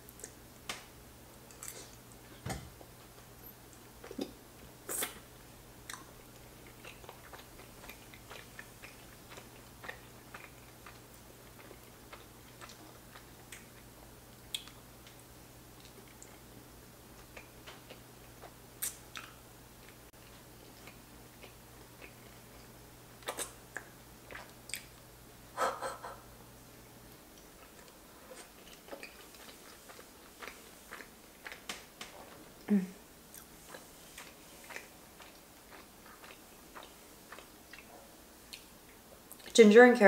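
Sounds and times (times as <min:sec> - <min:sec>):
person chewing: 0:01.4 - 0:02.4, 0:03.7 - 0:16.5, 0:17.2 - 0:25.0, 0:27.1 - 0:32.7, 0:33.3 - 0:39.5
wet mouth smacks and clicks: 0:18.8 - 0:19.4, 0:23.2 - 0:23.9.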